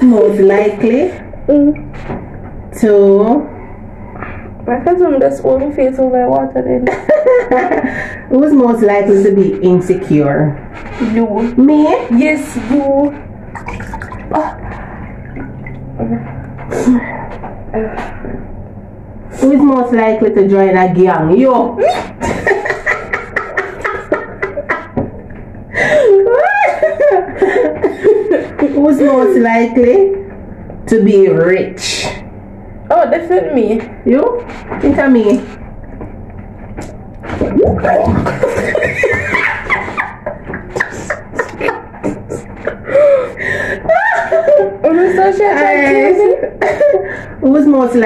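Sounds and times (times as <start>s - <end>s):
woman laughing: 6.8s - 8.1s, 21.8s - 25.1s, 25.8s - 29.4s, 37.9s - 47.2s
water splashing: 13.5s - 16.0s.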